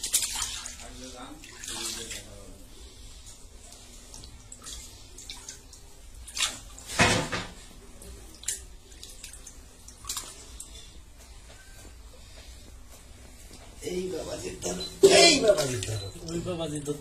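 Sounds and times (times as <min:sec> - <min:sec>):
water splashes and drips: 0:00.0 - 0:02.4, 0:03.6 - 0:10.8.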